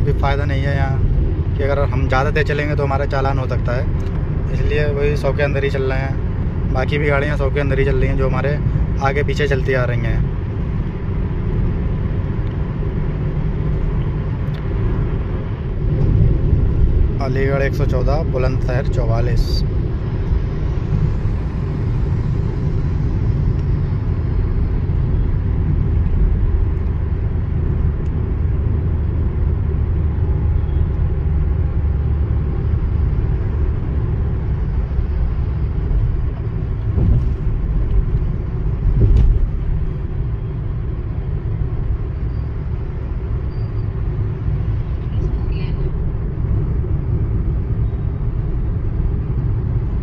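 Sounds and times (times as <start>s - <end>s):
road and engine rumble in car: 0.0s - 50.0s
short thumps: 36.8s - 39.8s.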